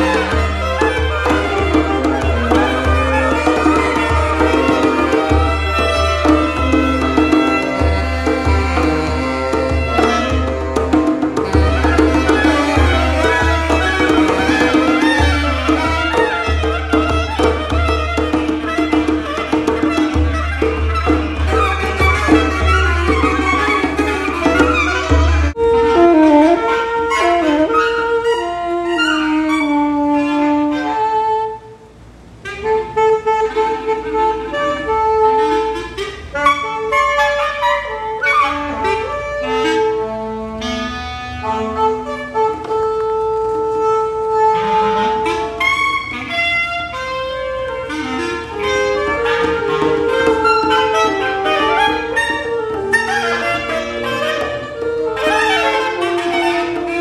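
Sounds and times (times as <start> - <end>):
saxophone ensemble playing: 0.0 - 57.0.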